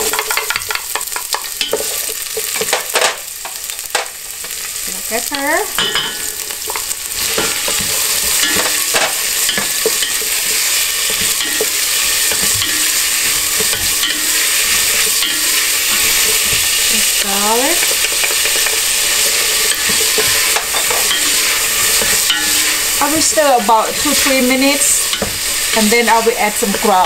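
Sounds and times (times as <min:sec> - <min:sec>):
vegetables sizzling in oil: 0:00.0 - 0:27.0
wooden spatula scraping a pot: 0:06.3 - 0:27.0.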